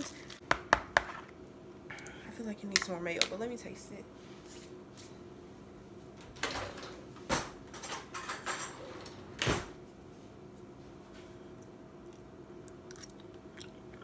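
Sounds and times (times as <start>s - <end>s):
metal utensils clattering in drawer: 7.7s - 9.2s.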